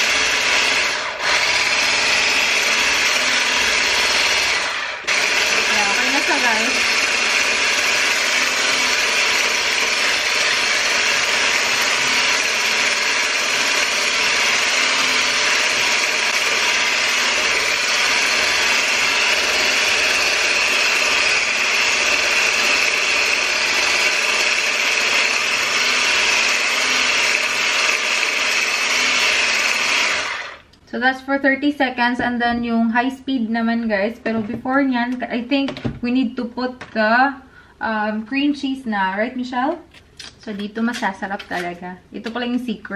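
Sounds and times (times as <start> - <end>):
stick blender whisking: 0.0 - 30.7.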